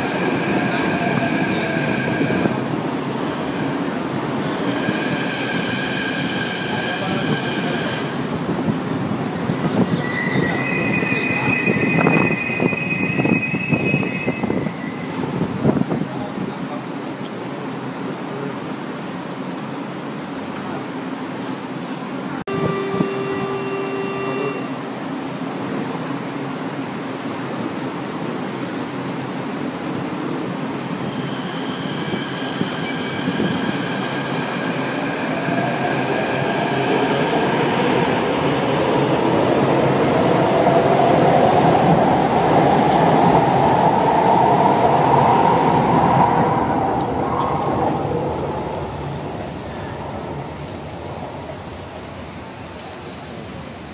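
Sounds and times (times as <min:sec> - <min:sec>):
train rumbling on rails: 0:00.0 - 0:53.9
high brake squeal: 0:10.0 - 0:15.3, 0:22.5 - 0:24.9, 0:31.0 - 0:34.4.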